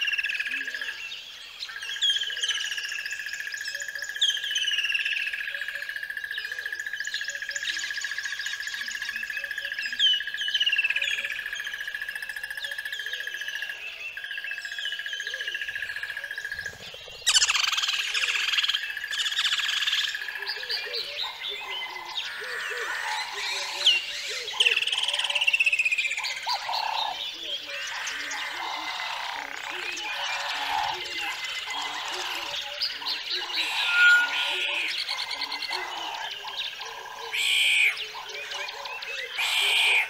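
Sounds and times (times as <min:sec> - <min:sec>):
birds chirping: 0:00.0 - 0:40.0
high-pitched bird trill: 0:17.2 - 0:19.8, 0:28.0 - 0:36.3.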